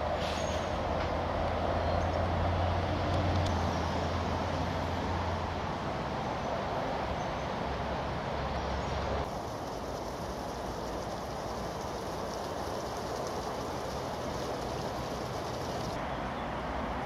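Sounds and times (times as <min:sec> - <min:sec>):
passing vehicle traffic rumble: 0:00.0 - 0:17.0.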